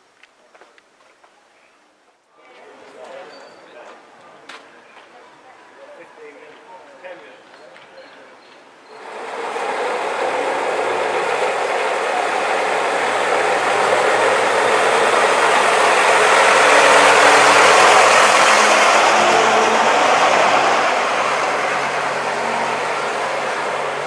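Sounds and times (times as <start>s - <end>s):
bus engine driving past: 8.9s - 24.0s.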